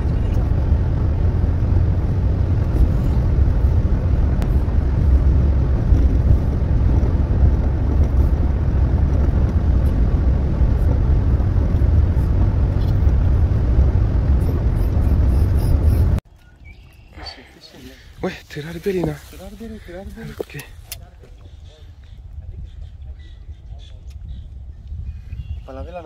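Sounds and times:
car cabin road and engine rumble: 0:00.0 - 0:16.2, 0:17.2 - 0:21.4.

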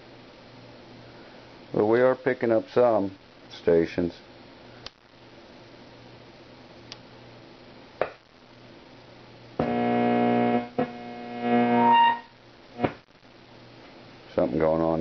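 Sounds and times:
radio static hiss and hum: 0:08.0 - 0:15.0
radio crackles: 0:09.6 - 0:13.4.

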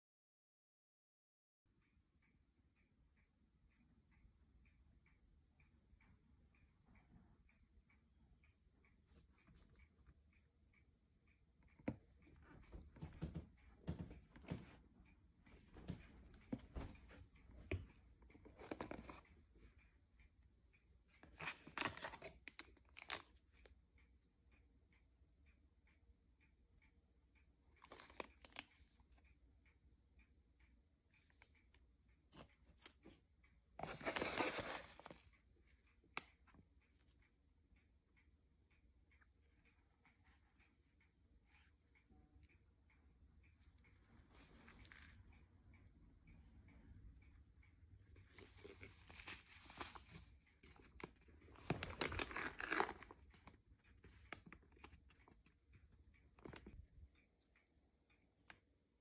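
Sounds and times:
light taps and clicks: 0:04.1 - 0:20.3
foil pouch crinkling: 0:51.8 - 0:53.2.

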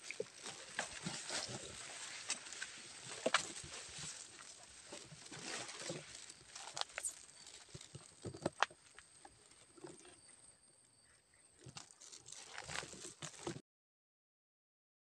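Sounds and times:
footsteps through grass: 0:00.0 - 0:08.2
leaves brushing: 0:00.0 - 0:08.2, 0:11.9 - 0:13.5.

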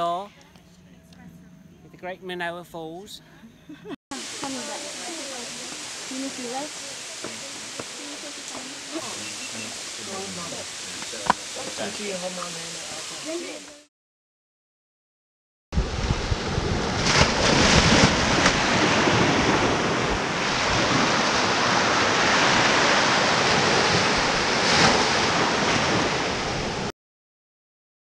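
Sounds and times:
ocean surf on sandy beach: 0:04.1 - 0:13.8, 0:15.8 - 0:26.9
waves breaking: 0:04.1 - 0:13.9, 0:15.8 - 0:26.9
wind buffeting microphone: 0:15.8 - 0:26.8.

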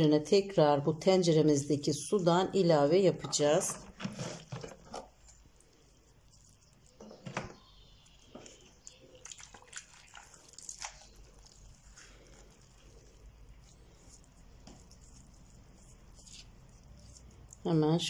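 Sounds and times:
wet rustling of leaves: 0:07.7 - 0:17.8.

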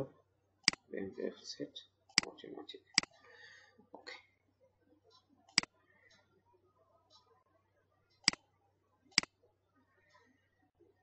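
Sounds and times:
computer mouse clicks: 0:08.2 - 0:08.4.

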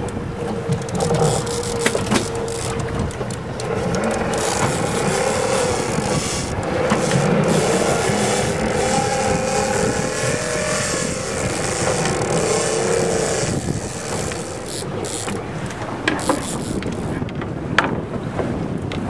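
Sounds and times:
outboard motors running: 0:00.0 - 0:17.3
wind: 0:00.0 - 0:19.0.

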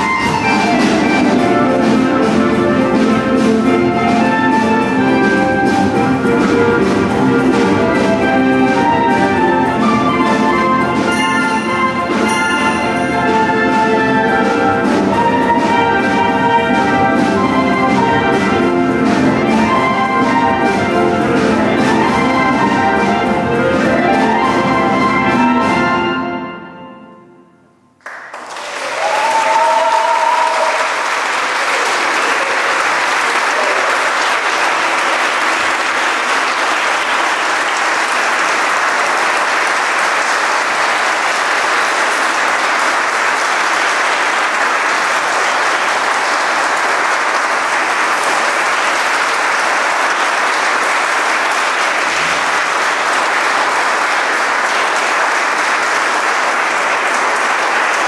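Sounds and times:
audience applause: 0:00.0 - 0:24.7, 0:28.0 - 0:58.0
crowd cheer: 0:10.8 - 0:14.6, 0:28.0 - 0:58.0.

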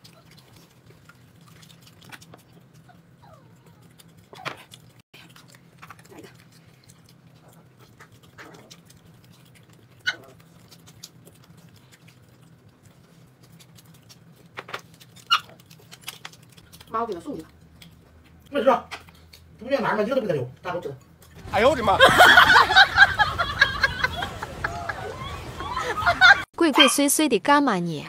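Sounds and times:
low steady hum: 0:00.0 - 0:26.5.

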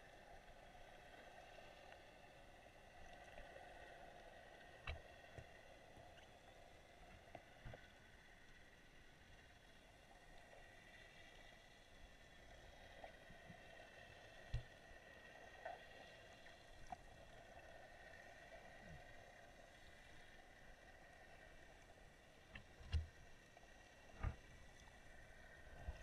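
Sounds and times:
faint steady hiss: 0:00.0 - 0:26.0.

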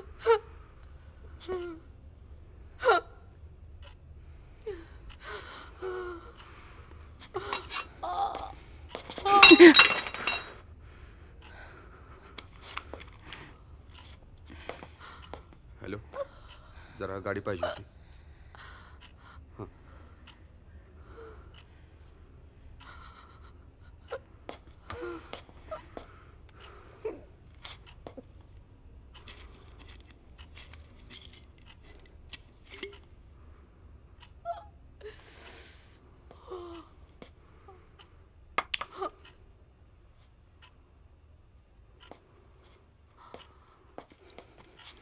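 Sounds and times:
woman whimpering: 0:07.4 - 0:08.6, 0:27.0 - 0:27.3, 0:34.4 - 0:36.9
woman crying out: 0:09.3 - 0:10.6.

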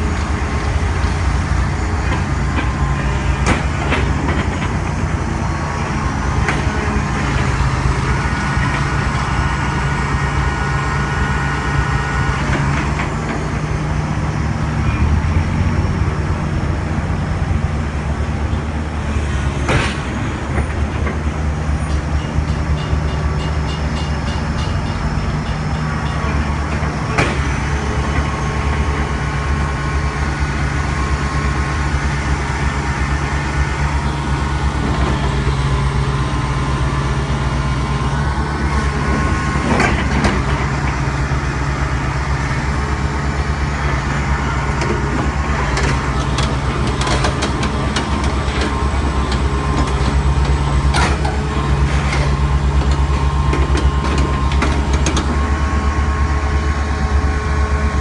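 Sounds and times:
excavator diesel engine running: 0:00.0 - 0:58.0
sharp metallic clanks: 0:21.9 - 0:26.4.

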